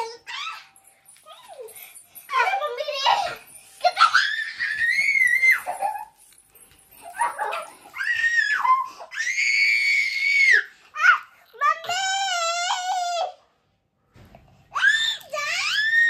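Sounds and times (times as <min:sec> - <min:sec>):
children screaming: 0:04.0 - 0:05.9, 0:07.3 - 0:10.7.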